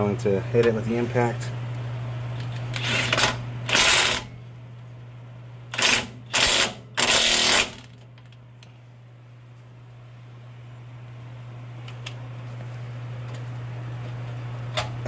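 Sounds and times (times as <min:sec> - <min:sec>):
impact wrench bursts: 0:02.8 - 0:04.3, 0:05.7 - 0:07.9.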